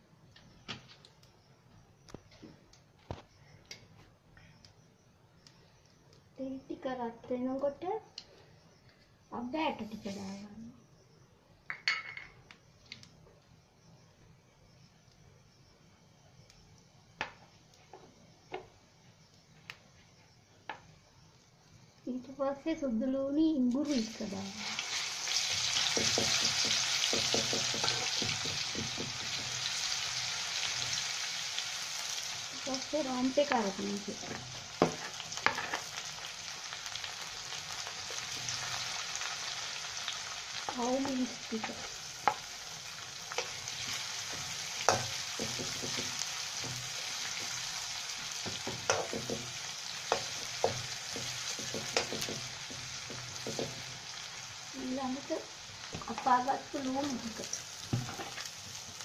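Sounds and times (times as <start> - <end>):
paste sizzling in hot oil: 23.6 - 59.0
spatula knocking against pan: 26.0 - 29.5, 48.4 - 49.5, 50.1 - 53.8
metal spoon stirring in wok: 48.5 - 53.8.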